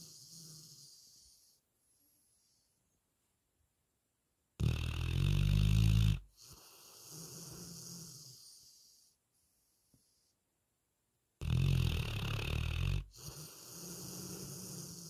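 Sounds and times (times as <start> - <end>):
dog snoring: 0.0 - 2.6, 4.6 - 9.2, 11.4 - 15.0.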